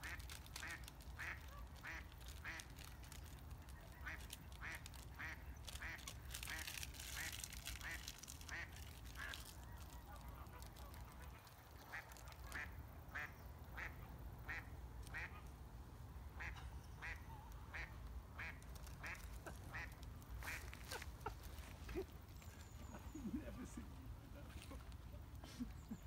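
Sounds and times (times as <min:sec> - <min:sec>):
duck quacking: 0:03.9 - 0:09.4, 0:10.1 - 0:15.5, 0:16.4 - 0:22.0.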